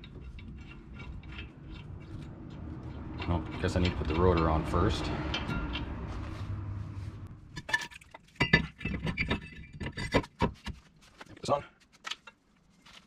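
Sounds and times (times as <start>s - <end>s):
metal brake rotor clanking: 0.0s - 6.3s.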